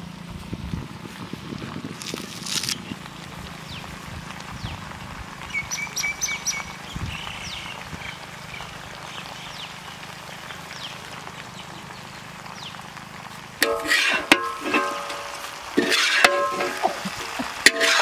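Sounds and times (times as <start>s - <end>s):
birds chirping: 2.7s - 13.6s.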